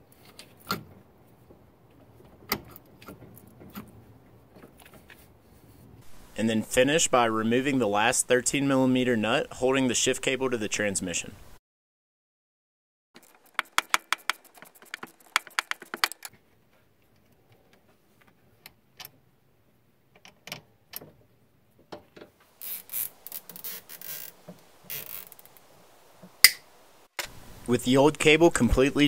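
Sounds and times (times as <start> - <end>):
cable rustling scrapes: 13.2 - 16.3, 22.5 - 25.7
metal clicking and rattling: 13.2 - 16.3.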